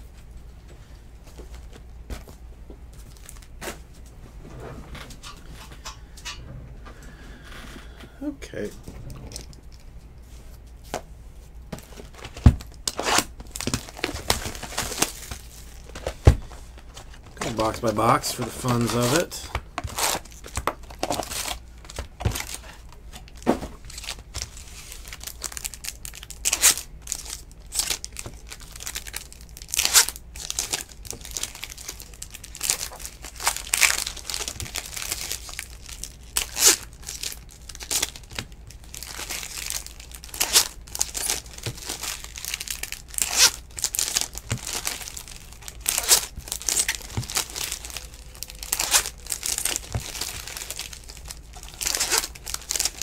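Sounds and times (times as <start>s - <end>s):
foil wrappers tearing and crinkling: 11.8s - 16.2s, 17.0s - 53.0s.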